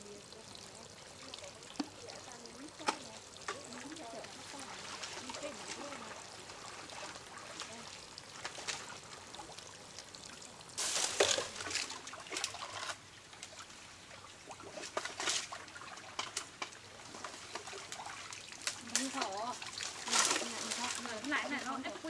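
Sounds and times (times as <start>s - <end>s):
splashing: 0.0s - 22.0s
water sloshing and trickling: 0.0s - 22.0s
branches dragged through water: 2.6s - 9.5s, 10.8s - 13.6s, 14.5s - 22.0s.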